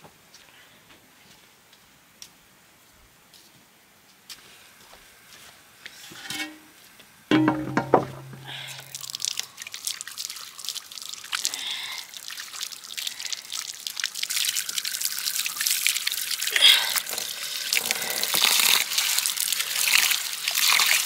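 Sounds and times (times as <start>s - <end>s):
water trickling and dripping: 7.3s - 21.0s.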